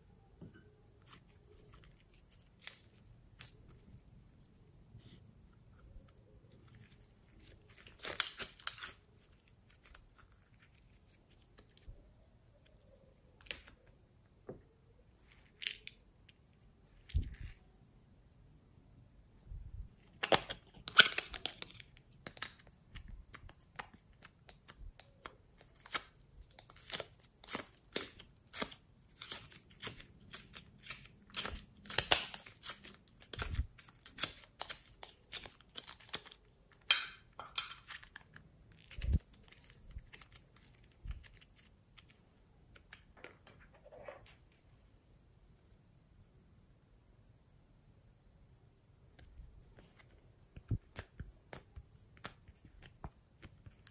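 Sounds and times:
slime popping and crackling: 7.4 - 10.2, 20.2 - 38.0.

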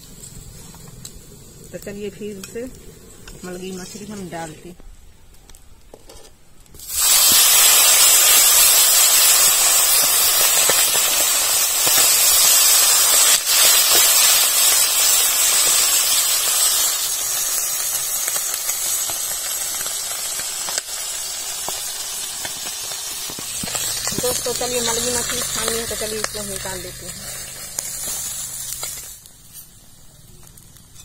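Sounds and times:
fish sizzling in hot oil: 6.8 - 31.0.

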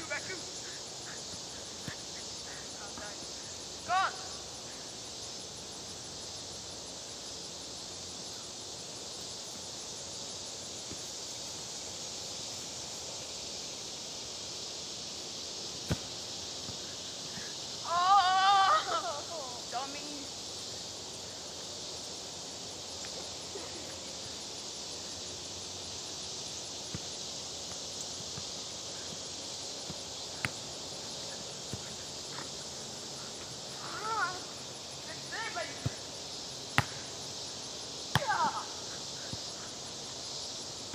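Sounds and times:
insects chorus in trees: 0.0 - 40.9
outdoor hiss of grassy field: 0.0 - 40.9
ball kicked with faint thud: 15.8 - 16.8, 36.8 - 37.0, 38.1 - 38.6
soccer ball being kicked: 15.9 - 16.1, 38.1 - 38.6.

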